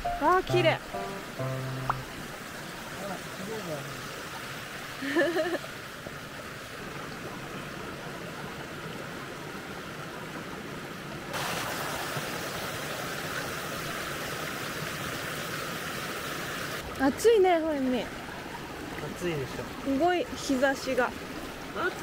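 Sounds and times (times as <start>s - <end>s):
stream rushing over rocks: 0.0s - 22.0s.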